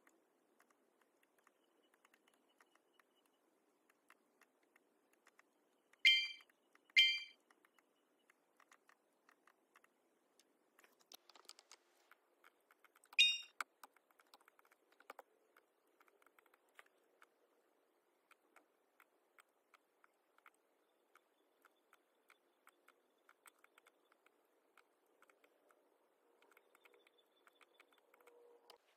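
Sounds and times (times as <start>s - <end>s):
mouse clicks: 0.0s - 11.8s, 18.2s - 25.8s, 26.4s - 28.8s
short high ringing tones: 6.1s - 6.4s, 7.0s - 7.4s, 13.2s - 13.5s.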